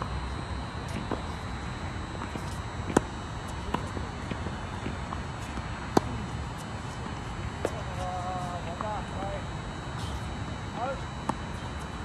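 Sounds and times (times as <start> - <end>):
tennis ball bouncing on court: 2.2 - 9.3, 10.8 - 11.9
tennis ball hitting racket: 2.2 - 9.3.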